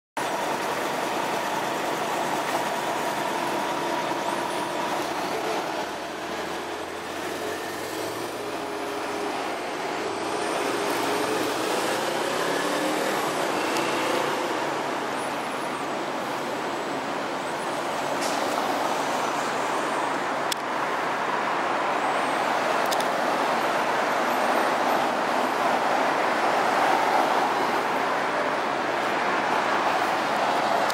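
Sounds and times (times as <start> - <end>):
cars driving past: 0.3 - 17.0.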